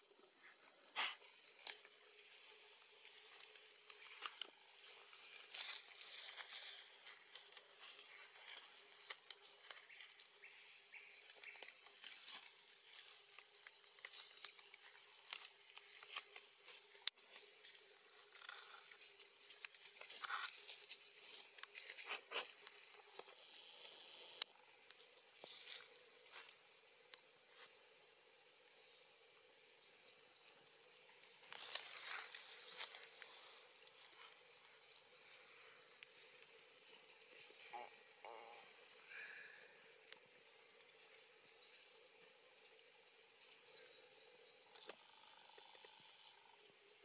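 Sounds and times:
rustling in dry leaves: 1.5 - 24.3, 31.4 - 38.2.

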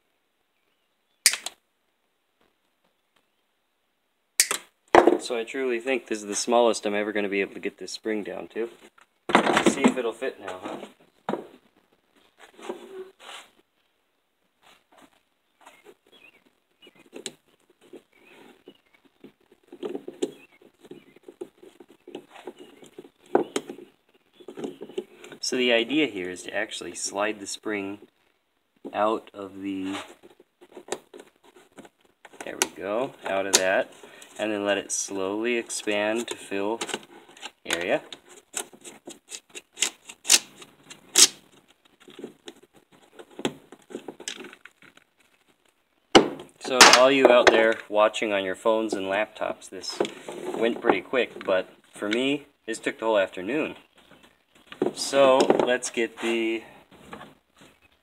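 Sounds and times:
sharp click: 1.2 - 1.6, 4.4 - 4.7
plastic scraping and rubbing: 8.7 - 13.6, 14.6 - 25.5, 27.9 - 47.9, 48.9 - 52.3.

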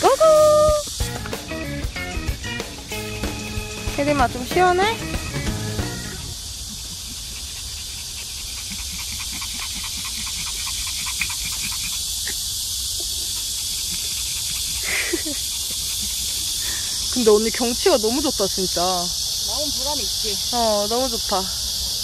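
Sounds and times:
cicadas droning: 0.0 - 22.0
dog panting: 6.5 - 19.0.

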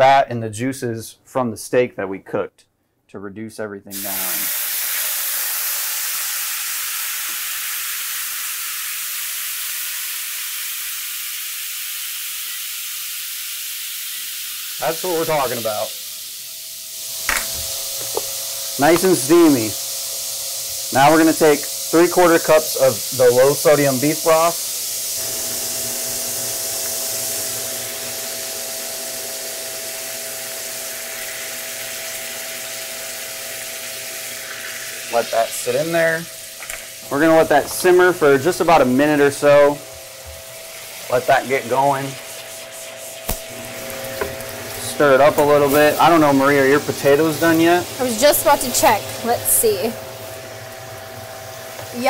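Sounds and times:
wine sizzling in a hot skillet: 3.9 - 52.0
vent fan hum: 14.8 - 52.0.

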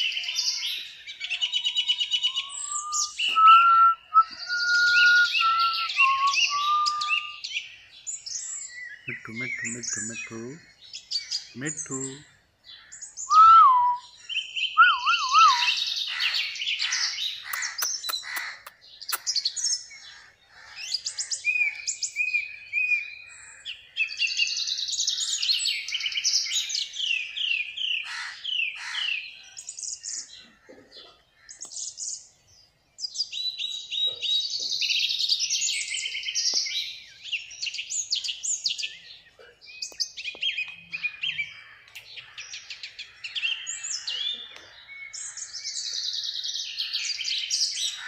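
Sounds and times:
wavering whistles: 2.3 - 7.4, 13.3 - 14.0, 14.8 - 15.8
parakeet chattering: 17.5 - 18.7.

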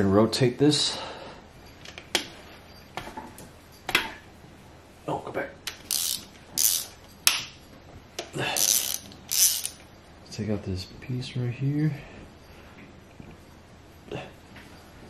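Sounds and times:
ratchet wrench clicking: 5.7 - 7.0, 8.6 - 9.8.

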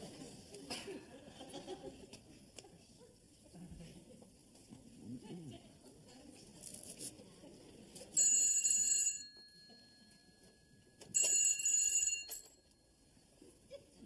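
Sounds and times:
telephone ringing: 8.2 - 12.8.

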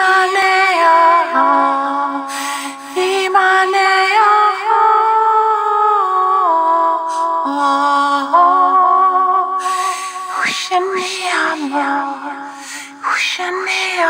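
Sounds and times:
woman singing long notes: 3.0 - 14.0
breaths between phrases: 9.6 - 11.6, 12.3 - 13.7.

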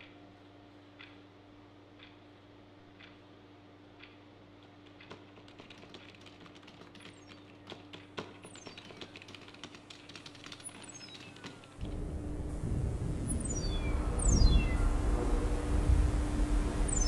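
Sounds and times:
low electric hum: 0.0 - 8.1, 9.2 - 17.0
keyboard typing clicks: 4.8 - 11.8
falling electronic chirps: 13.2 - 15.6.

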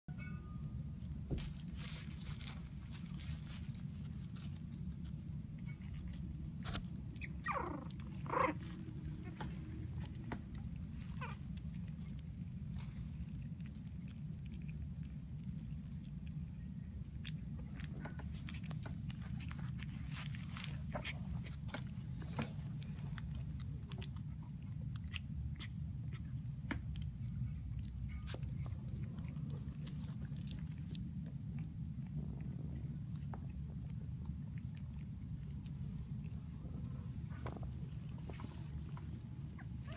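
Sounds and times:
steady low hum: 0.1 - 39.9
puppies chewing wet smacking: 2.7 - 39.9
puppies whimpering and squeaking: 5.6 - 12.2, 36.7 - 39.9
puppy yelp: 7.1 - 9.6, 11.0 - 11.5, 39.5 - 39.9
low rumble: 26.8 - 39.9.

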